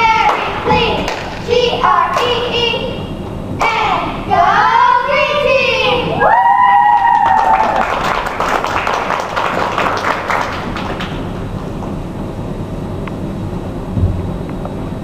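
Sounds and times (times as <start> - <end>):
low hum of hall: 0.0 - 15.0
audience clapping: 7.0 - 11.3.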